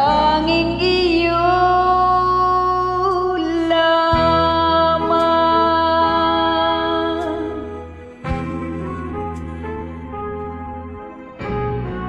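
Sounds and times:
woman singing a long note: 0.0 - 8.9
karaoke backing track chords: 0.0 - 12.0.

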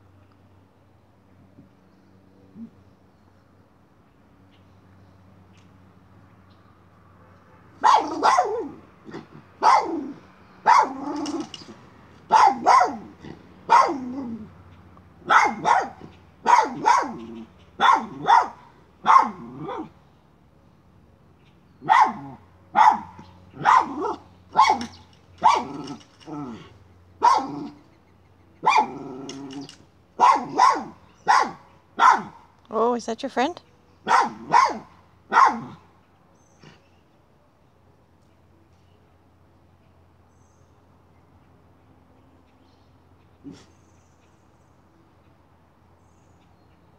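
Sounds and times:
dog barking: 7.8 - 8.8, 9.6 - 11.2, 12.3 - 13.1, 13.7 - 14.3, 15.2 - 19.9, 21.8 - 26.0, 27.2 - 27.8, 28.6 - 29.2, 30.2 - 32.4, 34.0 - 35.8
dog growling: 25.5 - 26.8, 28.8 - 29.8.

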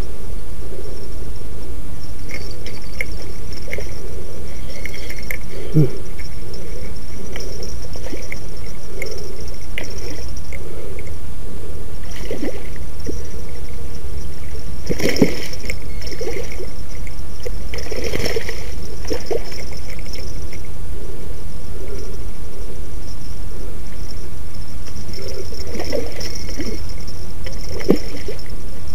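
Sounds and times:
low rumble: 0.0 - 28.9
fish splashing in water: 12.0 - 13.6, 14.8 - 20.3.

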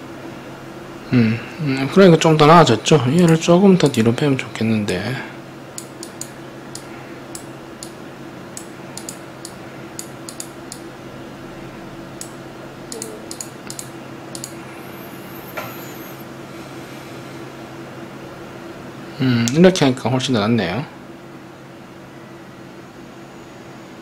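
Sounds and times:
steady low hum: 0.0 - 24.0
mouse and keyboard clicks: 9.0 - 9.2, 12.9 - 14.6
faint high whine: 12.8 - 17.8, 22.1 - 24.0.

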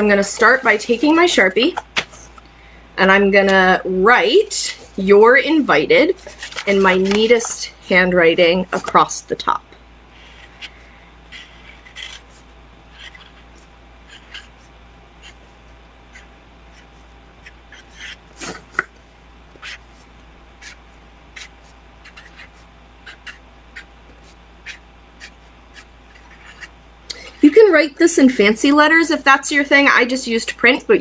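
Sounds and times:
marker writing on paper: 11.3 - 15.5, 16.1 - 18.6, 19.5 - 20.0, 20.6 - 26.7.

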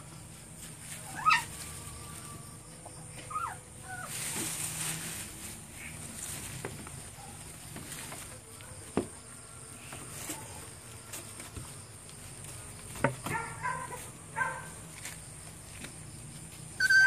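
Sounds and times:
puppies whimpering: 1.1 - 1.6, 3.1 - 4.3.

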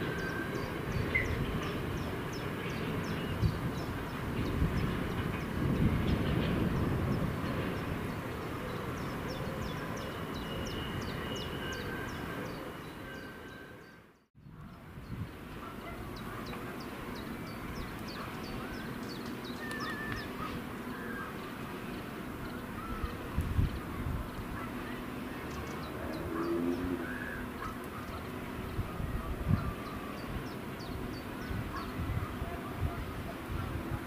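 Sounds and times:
train rumble: 0.0 - 13.5
small birds chirping: 0.0 - 33.9.

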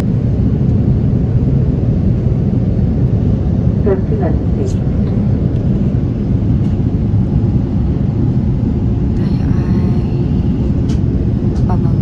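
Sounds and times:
airliner cabin noise: 0.0 - 12.0.

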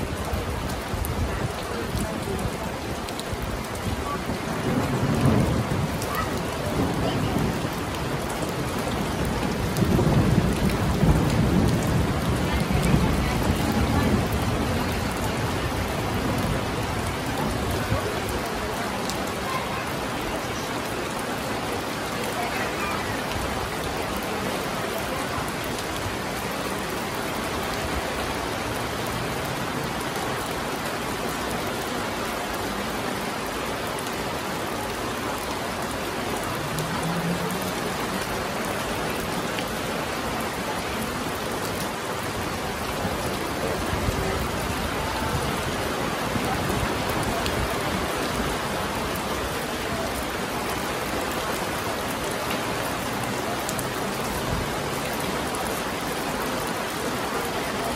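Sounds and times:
rain on stone paving: 0.0 - 57.9.

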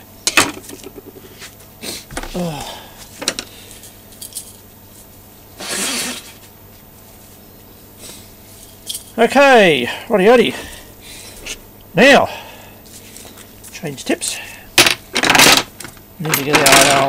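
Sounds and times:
person humming: 2.2 - 2.9
small metal parts clinking: 4.1 - 4.6, 8.6 - 9.2, 14.8 - 17.0
breathy nasal sniff: 5.6 - 6.4, 8.0 - 8.4.

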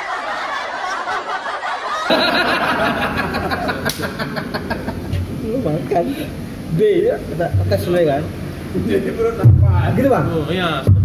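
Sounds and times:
men laughing: 0.0 - 5.4.

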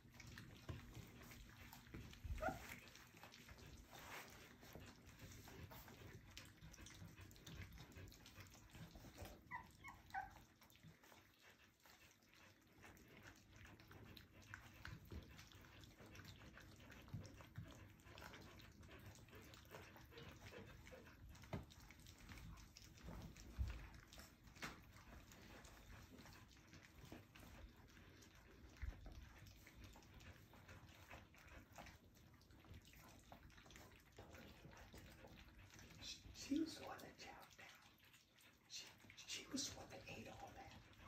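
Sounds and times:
puppies lapping from metal pan: 0.0 - 41.0
puppy whimpers: 1.2 - 3.1, 8.8 - 10.8.

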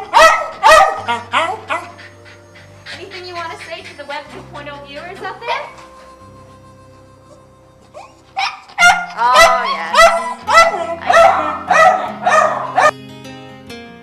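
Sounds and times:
dog barking: 0.0 - 1.9, 8.4 - 12.9
soft background music: 0.0 - 14.0.

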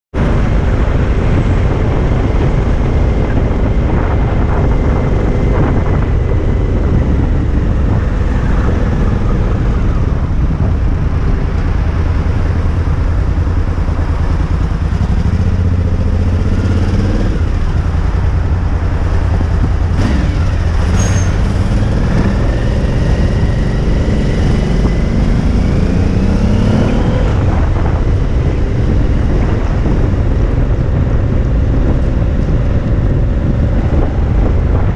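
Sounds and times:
motorcycle engine rumbling: 0.1 - 34.9.

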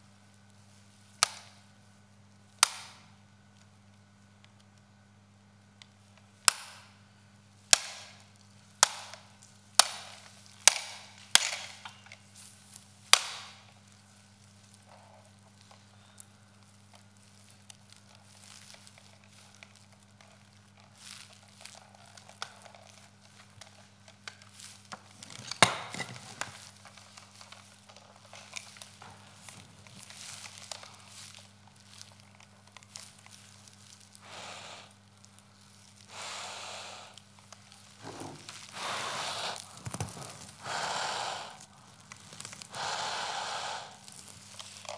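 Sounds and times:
handling and rustling: 10.1 - 34.2, 37.2 - 40.6, 41.6 - 42.7, 44.0 - 44.9.

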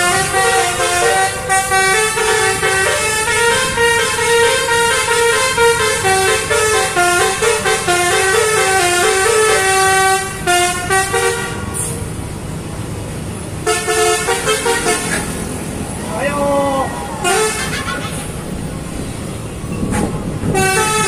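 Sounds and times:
multi-note bus horn melody: 0.0 - 12.0, 13.6 - 15.4, 17.2 - 18.0, 19.8 - 21.0.

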